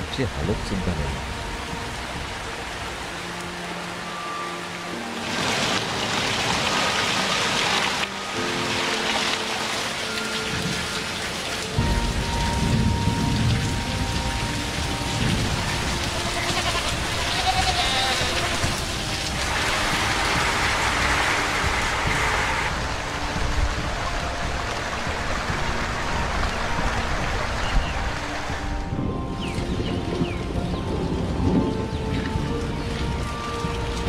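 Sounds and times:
rain falling and splashing: 0.0s - 34.0s
goats bleating: 16.1s - 18.9s.

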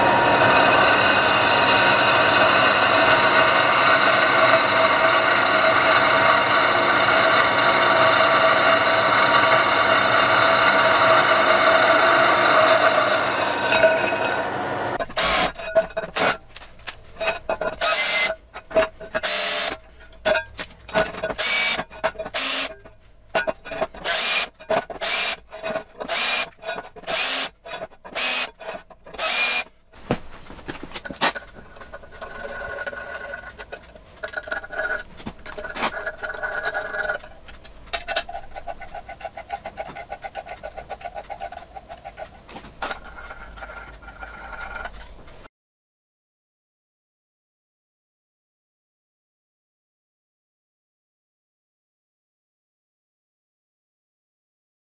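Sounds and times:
drill press drilling metal: 0.0s - 16.4s, 17.3s - 18.4s, 19.1s - 19.8s, 21.0s - 22.7s, 23.8s - 29.7s
handheld drill whirring: 0.0s - 16.4s, 17.2s - 18.4s, 19.1s - 19.9s, 21.0s - 22.9s, 23.7s - 29.8s.

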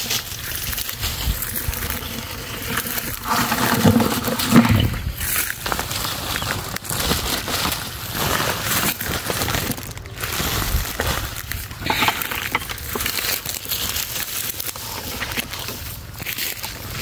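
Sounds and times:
plastic sack rustling: 0.0s - 17.0s
rustling leafy undergrowth: 0.0s - 17.0s.

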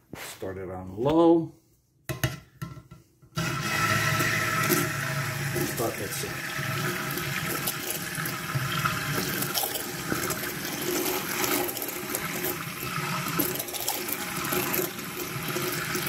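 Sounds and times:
stick blender running: 3.4s - 16.0s.

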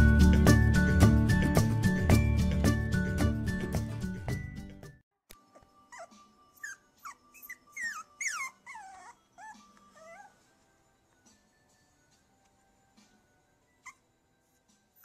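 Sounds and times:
puppy whining and whimpering: 5.5s - 10.6s, 13.8s - 14.2s.

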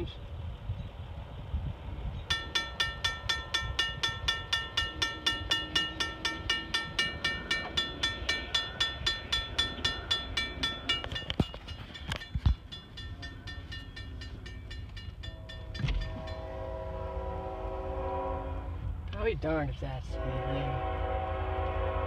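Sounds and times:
steady low rumble: 0.0s - 22.0s
crossing bell ringing: 2.2s - 17.4s.

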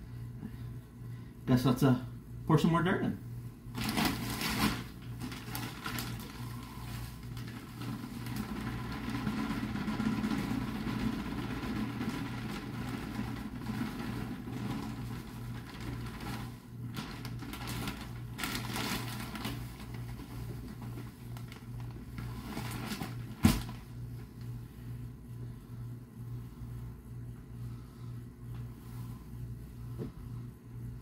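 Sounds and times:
low pulsing hum: 0.0s - 2.6s, 3.2s - 31.0s
plastic bag crinkling: 3.7s - 23.9s.

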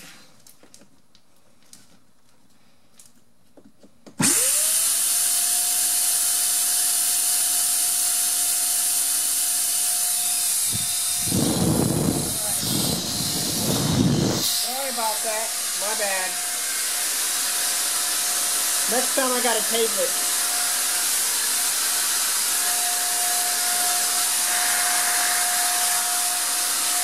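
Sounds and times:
air compressor whining: 4.2s - 27.0s
rush of air: 10.6s - 14.9s.

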